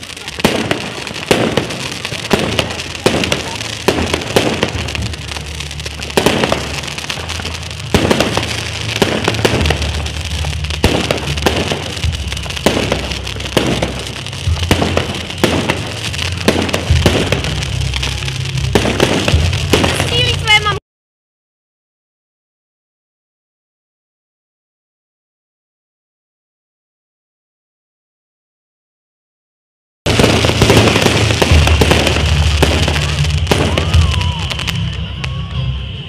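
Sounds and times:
crackling hiss of fireworks: 0.0s - 20.8s, 30.1s - 36.0s.

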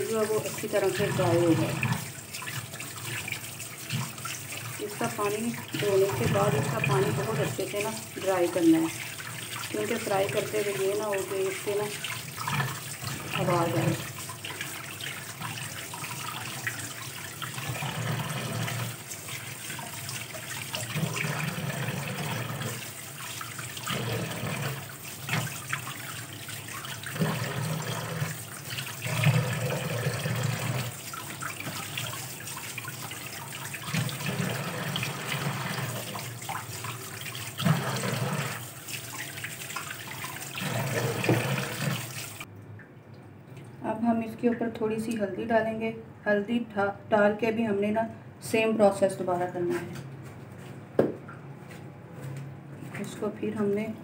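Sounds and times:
tap water splashing into a bowl: 18.5s - 43.8s, 51.0s - 51.4s.

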